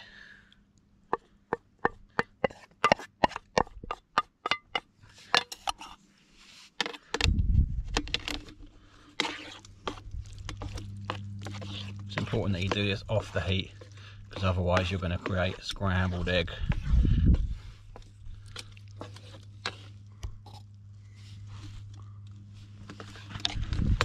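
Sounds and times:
rustling and scraping: 4.8s - 24.0s
low rumble of handling: 7.2s - 24.0s.

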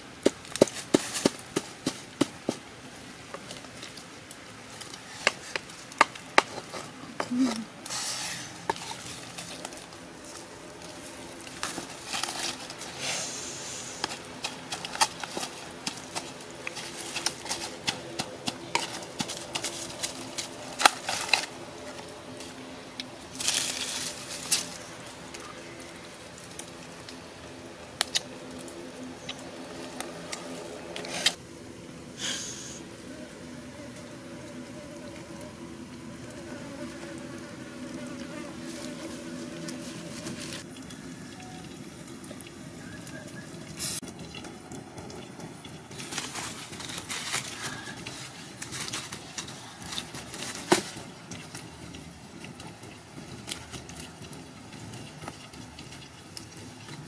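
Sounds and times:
rustling: 0.4s - 26.9s, 45.9s - 52.5s.

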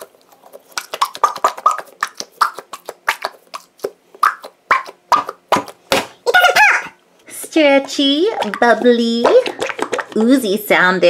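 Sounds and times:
squishy toy squelching and squeaking: 0.0s - 6.9s.

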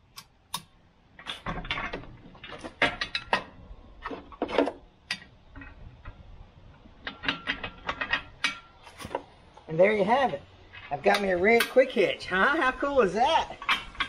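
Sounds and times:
metal clinks and knocks: 1.2s - 9.3s, 13.5s - 14.0s.

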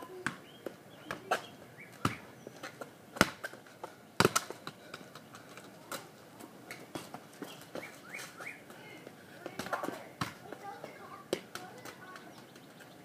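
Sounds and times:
birds chirping: 0.0s - 5.7s, 6.8s - 13.0s
soccer ball being kicked: 2.0s - 2.3s, 3.2s - 3.6s, 4.2s - 4.8s.

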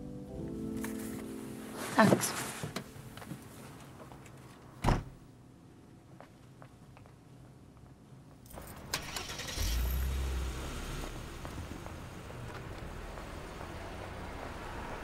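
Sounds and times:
road noise: 0.8s - 15.0s
car engine rumble: 8.4s - 15.0s.

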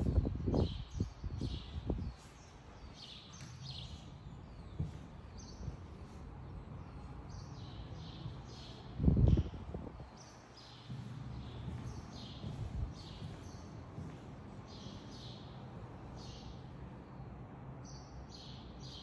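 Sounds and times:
small birds chirping: 0.0s - 19.0s
low thuds: 10.8s - 14.6s.

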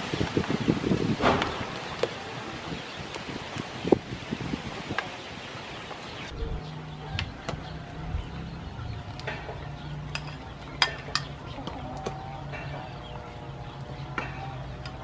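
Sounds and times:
metal ladle clinking against pot: 10.1s - 11.4s.

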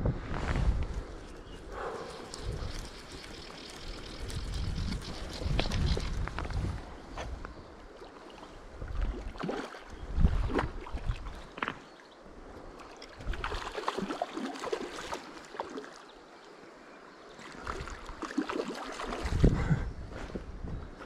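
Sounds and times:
wind buffet on microphone: 0.0s - 7.6s, 9.9s - 11.4s, 19.2s - 21.0s
fish splashing in water: 13.2s - 16.0s, 17.6s - 19.4s.

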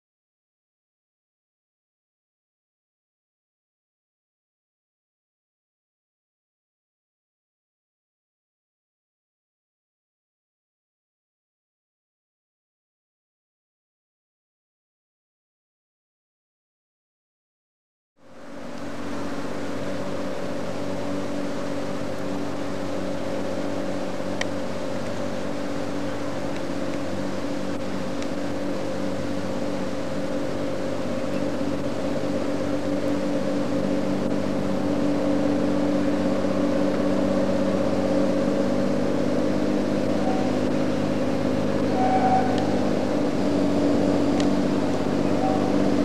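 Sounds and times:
tramcar engine droning: 18.2s - 46.0s.

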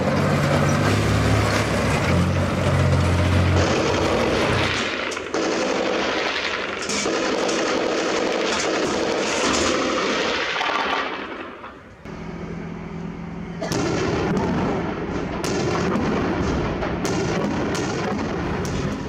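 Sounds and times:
sustained gunfire: 3.6s - 11.8s, 13.6s - 19.0s
rocket salvo firing: 3.6s - 12.0s, 13.6s - 19.0s
helicopter hum: 12.1s - 19.0s.

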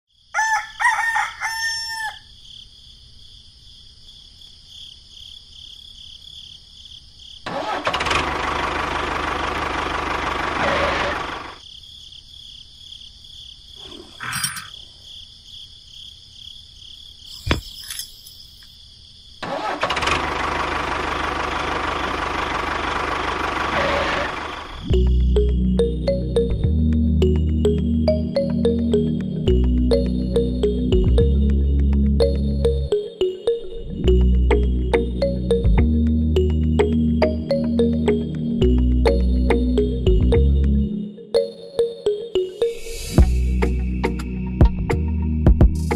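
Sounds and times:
rooster crowing: 0.3s - 2.4s
tractor engine: 7.5s - 11.6s, 19.4s - 25.0s.

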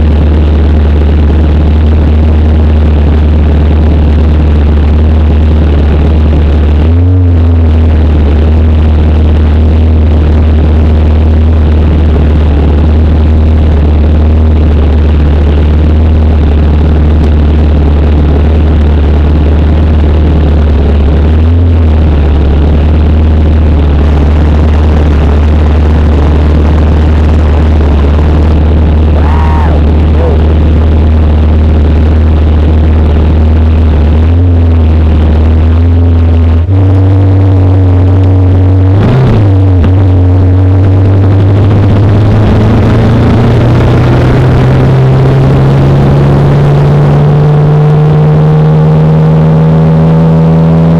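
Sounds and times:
motorcycle engine idling: 0.0s - 36.7s.

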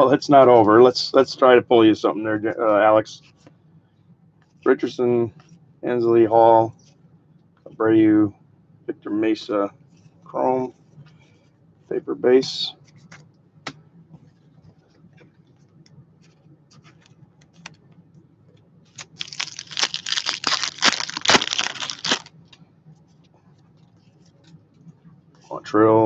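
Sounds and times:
card pack wrapper tearing: 19.0s - 22.3s.

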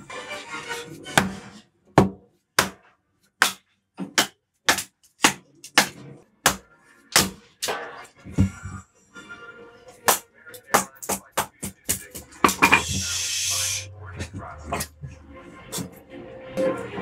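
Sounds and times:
mallet striking hatchet: 2.0s - 7.9s.

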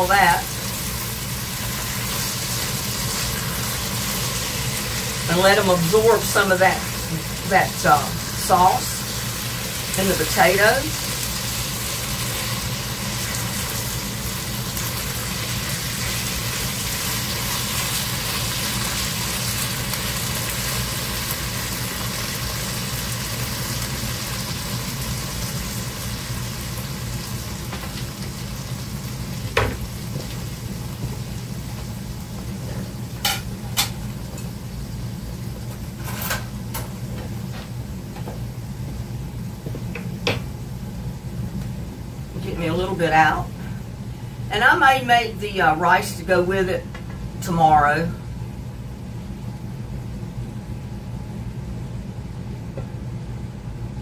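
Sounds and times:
vegetables sizzling in a skillet: 0.0s - 37.4s.

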